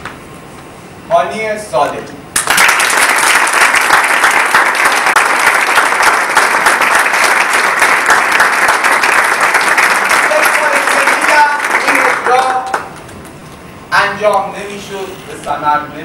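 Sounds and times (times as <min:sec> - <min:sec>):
crowd applauding: 0:02.4 - 0:13.1.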